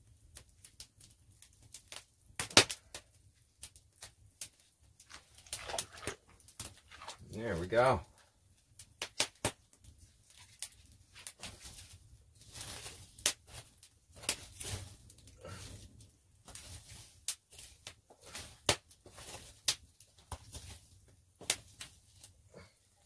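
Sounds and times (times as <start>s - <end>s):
wood fire crackling and popping: 0.0s - 23.0s
sticks being handled: 4.4s - 7.2s, 10.0s - 22.4s.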